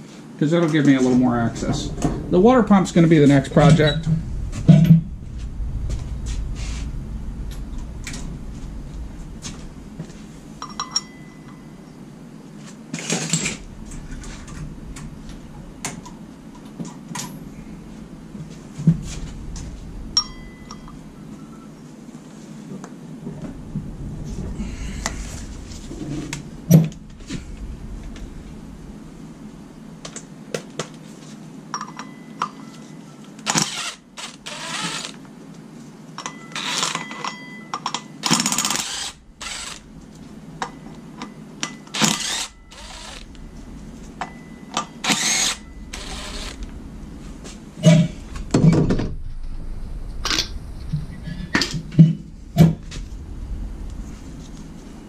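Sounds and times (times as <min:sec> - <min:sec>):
tools and parts clinking: 0:31.7 - 0:32.9, 0:36.2 - 0:38.7
cordless drill spinning in bursts: 0:33.5 - 0:35.2, 0:38.3 - 0:39.8, 0:41.9 - 0:43.3, 0:45.0 - 0:46.6.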